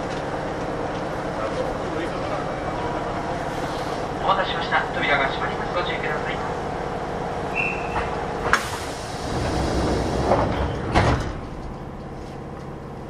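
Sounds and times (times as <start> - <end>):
train doors sliding: 7.5 - 12.8
hiss of air: 8.5 - 10.3
doors thudding shut: 10.2 - 11.6.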